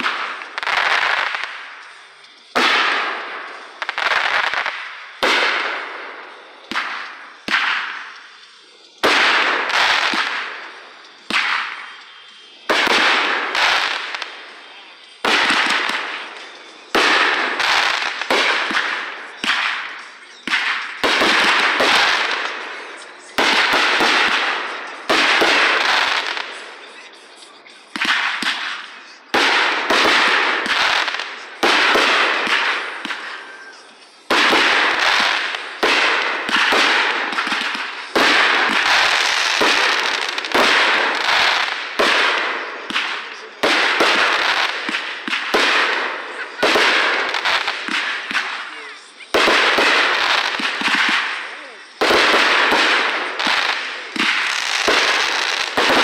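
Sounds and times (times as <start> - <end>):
fireworks banging: 0.0 - 56.0.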